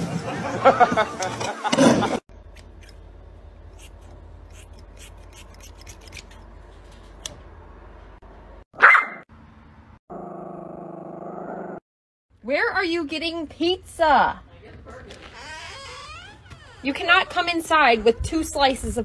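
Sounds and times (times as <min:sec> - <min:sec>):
scissors snipping hair: 0:03.8 - 0:06.4
dog barking: 0:08.8 - 0:09.2
dog growling: 0:10.1 - 0:11.8.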